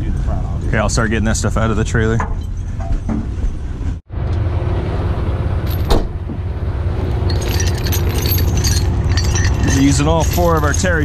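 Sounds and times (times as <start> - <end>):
tow chains clinking: 5.6 - 6.0, 7.1 - 11.0.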